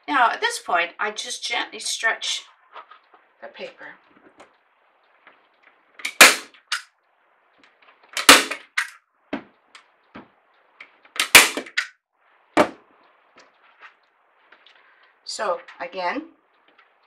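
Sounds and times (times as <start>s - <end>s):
staple gun snapping: 6.0s - 6.8s, 8.2s - 9.0s, 11.2s - 11.9s.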